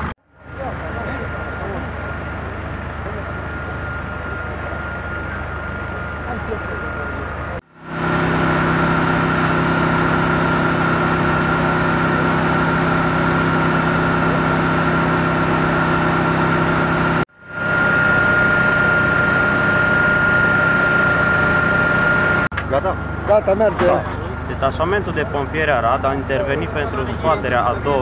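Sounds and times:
high whine: 0.0 - 23.1
engine running steadily: 0.0 - 28.0.

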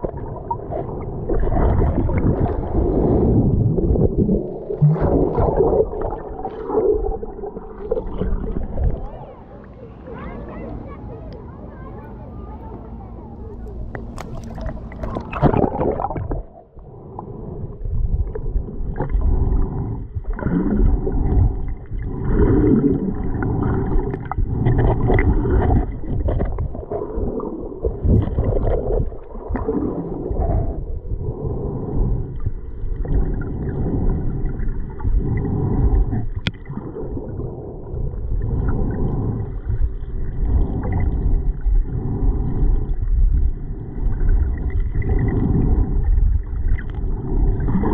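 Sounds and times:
water splash: 0.0 - 9.4, 13.9 - 16.6, 18.1 - 30.8
muffled underwater gurgle: 0.0 - 47.9.

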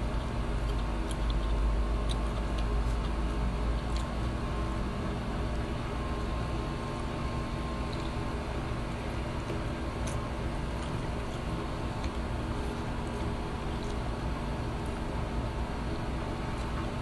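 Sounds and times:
low machine hum: 0.0 - 17.0
faint clicks and smacks from eating: 0.1 - 4.2, 7.8 - 8.3, 9.3 - 15.0.

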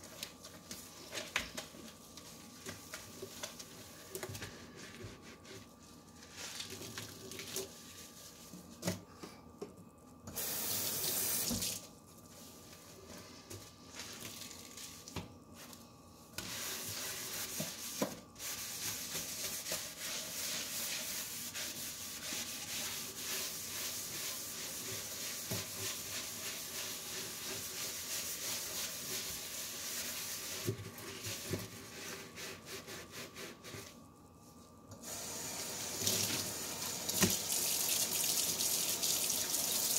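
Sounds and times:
sponge scrubbing a steel sink: 0.0 - 8.8, 16.4 - 34.0.

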